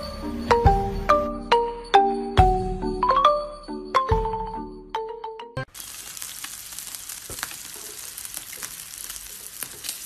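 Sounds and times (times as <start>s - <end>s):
steady hiss: 5.7s - 10.0s
small crackles and clicks: 5.8s - 10.0s.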